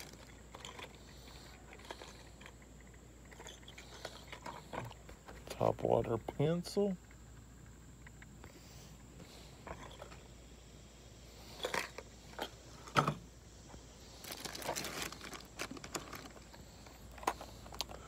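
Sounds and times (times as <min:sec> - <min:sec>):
plastic packaging crinkling: 0:14.2 - 0:16.5.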